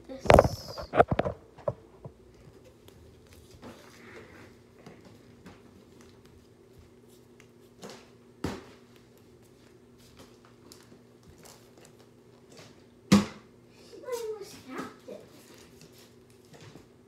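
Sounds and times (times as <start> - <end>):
ceiling fan humming: 0.0 - 17.0.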